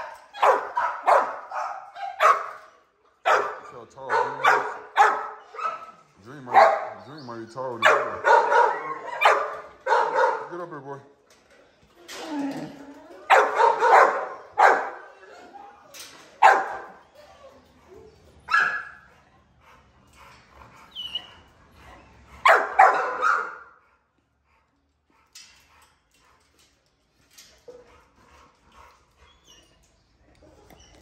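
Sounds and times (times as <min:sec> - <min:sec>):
dogs barking: 0:00.0 - 0:10.7, 0:13.2 - 0:15.4, 0:16.4 - 0:17.5, 0:18.5 - 0:19.1, 0:22.4 - 0:23.8.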